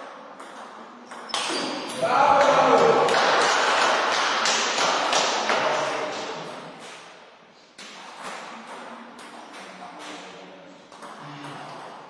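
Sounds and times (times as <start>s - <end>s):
table tennis ball bouncing: 0.0s - 3.1s, 7.8s - 10.2s, 10.9s - 12.0s
person shouting: 2.0s - 3.1s.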